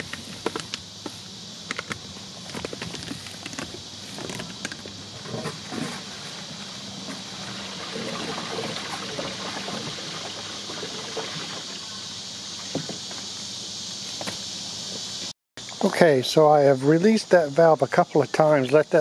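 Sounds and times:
water gurgling down a hose: 0:07.4 - 0:11.9.

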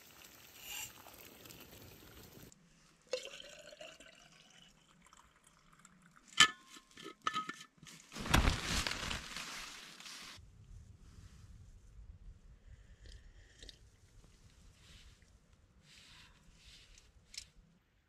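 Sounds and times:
hot water pouring into bottle: 0:00.0 - 0:02.5, 0:03.1 - 0:06.3
tent fabric door rustling: 0:08.1 - 0:10.4.

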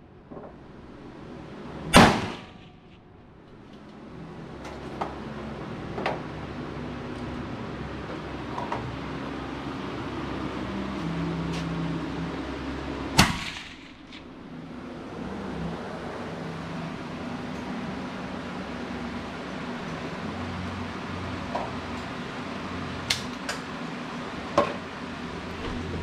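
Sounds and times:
rifle shot with echo: 0:01.9 - 0:02.6, 0:13.2 - 0:14.1
faint gunshot cracks: 0:13.2 - 0:14.0.

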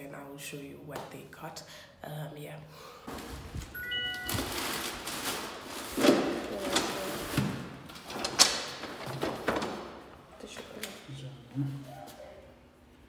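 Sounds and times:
short electronic beep: 0:03.8 - 0:04.7.

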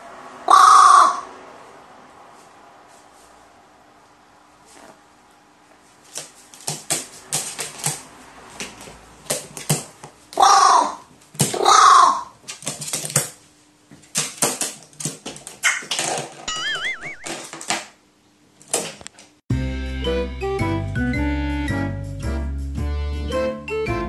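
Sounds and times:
crow cawing: 0:00.5 - 0:01.3, 0:10.4 - 0:11.0, 0:11.6 - 0:12.3.

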